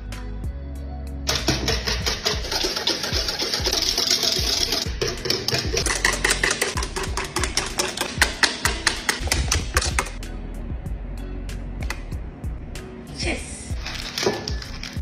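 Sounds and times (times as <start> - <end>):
wire whisk clattering in metal pot: 1.3 - 10.1.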